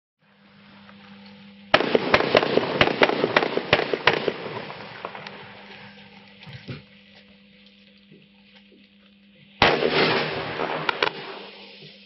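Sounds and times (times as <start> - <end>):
firework launch pops: 1.8 - 5.4, 9.6 - 12.0
hiss of rising comets: 9.8 - 12.0.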